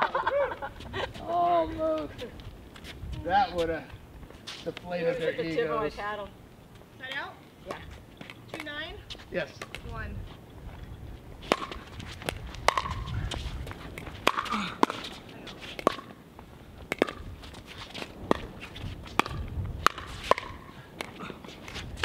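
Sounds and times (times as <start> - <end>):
ball popping off paddles: 11.5 - 13.0, 14.0 - 15.1
ball bouncing on court: 11.5 - 13.1, 14.0 - 15.0.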